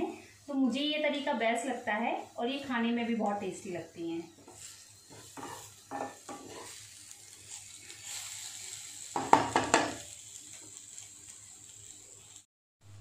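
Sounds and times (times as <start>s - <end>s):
okra sizzling in oil: 0.0s - 12.5s
wooden spatula scraping and knocking pan: 4.4s - 6.8s.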